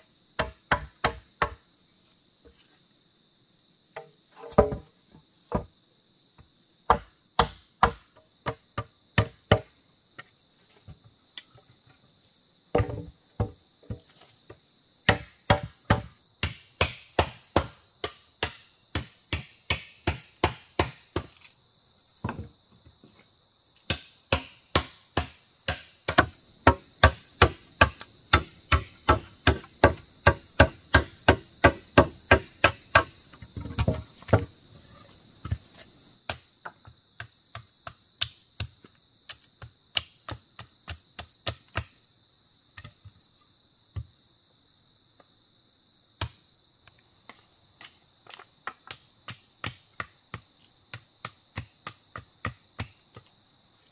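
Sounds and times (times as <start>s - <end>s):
insect drone: 0.0s - 53.9s
blade chopping into wood: 15.0s - 21.3s, 23.9s - 34.5s, 46.2s - 46.4s.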